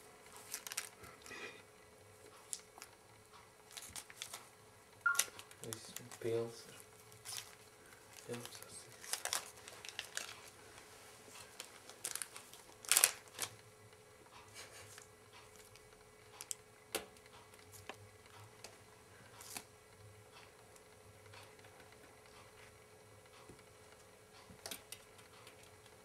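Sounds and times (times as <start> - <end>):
plastic wrapper crinkling: 0.3 - 1.3, 3.7 - 4.5, 5.1 - 10.6, 11.4 - 13.6.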